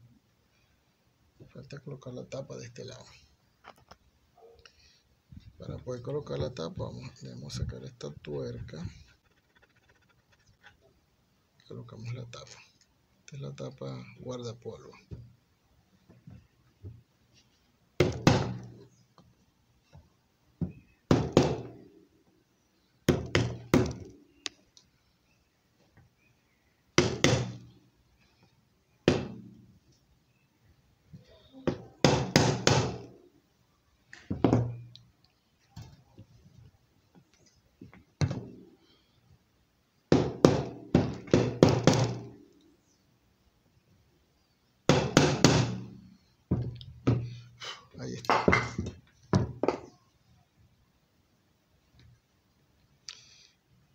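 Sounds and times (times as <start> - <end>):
sharp knocks on wooden block: 20.6 - 21.8, 27.0 - 27.6, 29.1 - 29.4, 31.7 - 33.1, 40.1 - 42.3, 44.9 - 45.9.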